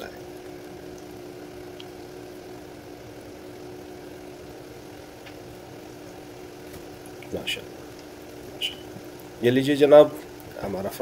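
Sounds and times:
food sizzling in hot oil: 0:00.0 - 0:11.0
steady low hum: 0:00.0 - 0:11.0.

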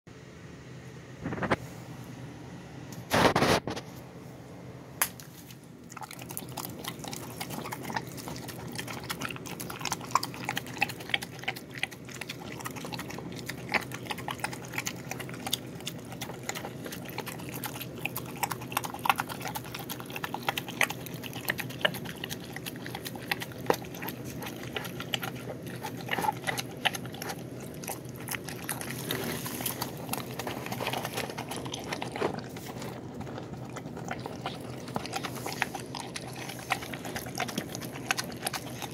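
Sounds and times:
dog chewing wet food: 0:05.8 - 0:38.9
clicks and crunches: 0:12.2 - 0:38.9.

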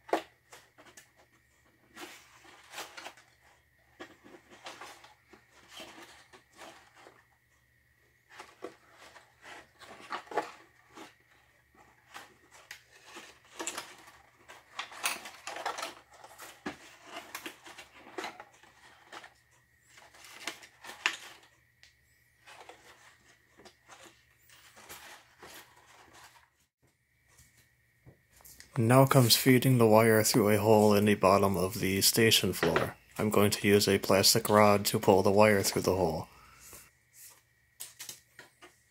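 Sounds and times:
hands rustling wires and paper: 0:22.4 - 0:26.7.

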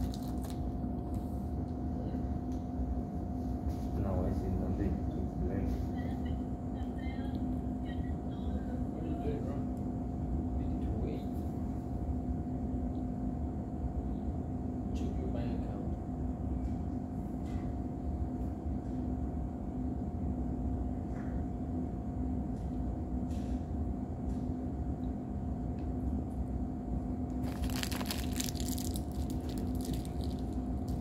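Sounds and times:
plastic wrapper crinkling: 0:00.0 - 0:00.6, 0:27.4 - 0:31.0.

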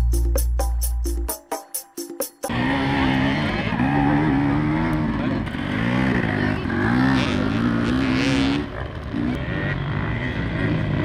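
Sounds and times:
dirt bike engines revving: 0:02.5 - 0:11.0.

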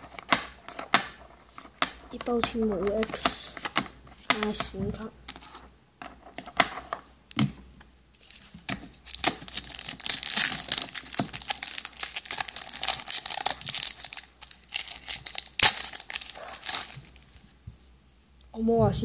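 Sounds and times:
foil wrapper crinkling: 0:08.2 - 0:17.4
foil wrapper tearing: 0:09.1 - 0:17.3.

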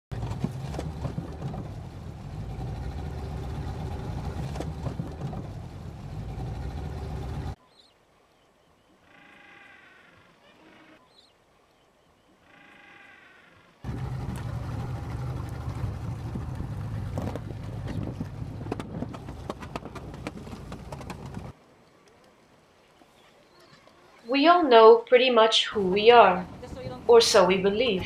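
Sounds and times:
outboard motor running: 0:00.1 - 0:07.6, 0:13.8 - 0:21.5
faint pitched calls: 0:08.8 - 0:11.4, 0:12.2 - 0:13.8.

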